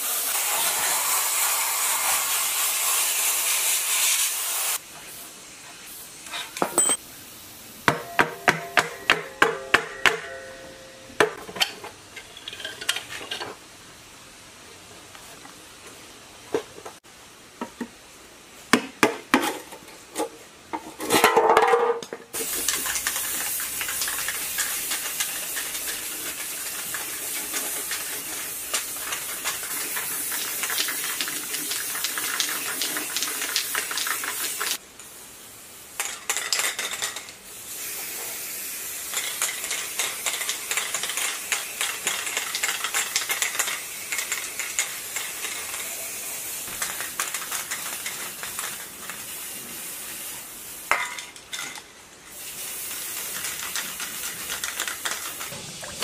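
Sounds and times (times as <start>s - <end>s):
aerosol spray can hissing: 0.0s - 4.8s, 31.7s - 35.2s.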